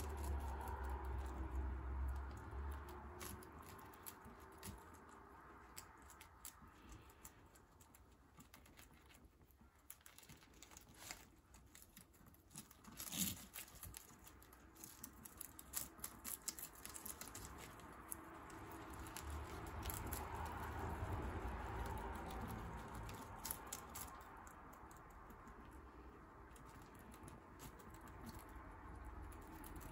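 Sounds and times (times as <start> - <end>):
guinea pigs chewing greens: 0.0 - 29.9.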